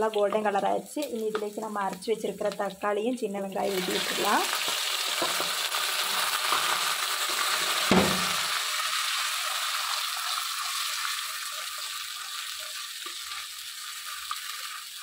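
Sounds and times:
paste sizzling in oil: 3.5 - 15.0
dull thud of container: 7.9 - 8.4.

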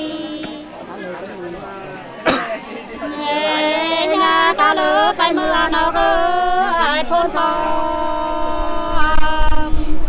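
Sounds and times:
two women singing unaccompanied: 0.0 - 0.8, 3.0 - 10.0.

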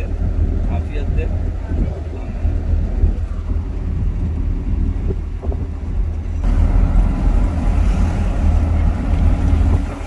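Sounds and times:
car driving rumble: 0.0 - 10.0
rushing noise: 5.5 - 10.0.

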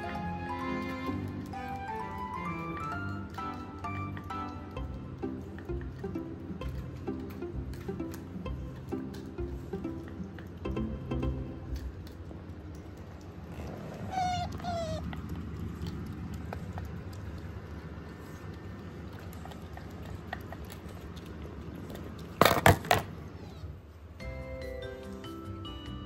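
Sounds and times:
otter squeaking: 13.4 - 15.2.

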